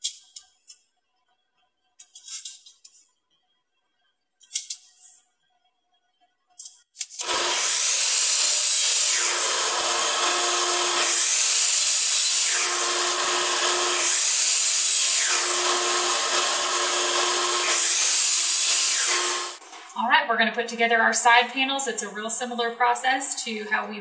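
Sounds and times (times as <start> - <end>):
miter saw cutting wood: 7.1 - 20.0.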